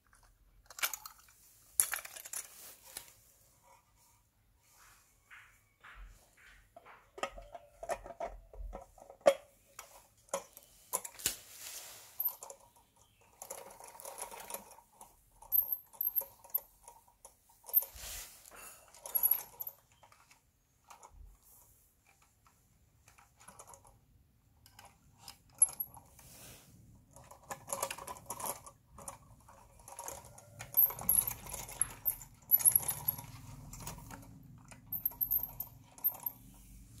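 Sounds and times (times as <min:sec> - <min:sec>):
toy truck handling clicks and rattles: 0:00.0 - 0:03.1, 0:12.4 - 0:17.9, 0:18.9 - 0:21.3, 0:22.0 - 0:24.0, 0:24.6 - 0:26.2, 0:27.1 - 0:36.4.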